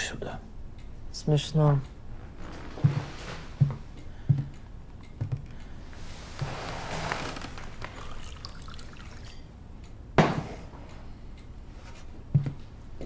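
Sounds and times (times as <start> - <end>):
liquid pouring into glass: 7.8 - 9.5.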